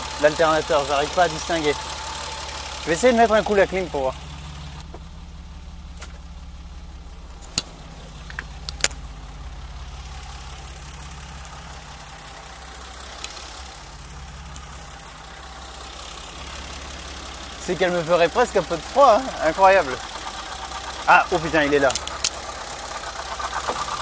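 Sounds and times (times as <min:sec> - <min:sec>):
car engine idling: 0:00.0 - 0:24.0
sharp clicks: 0:07.4 - 0:09.0, 0:13.1 - 0:14.8, 0:20.0 - 0:24.0.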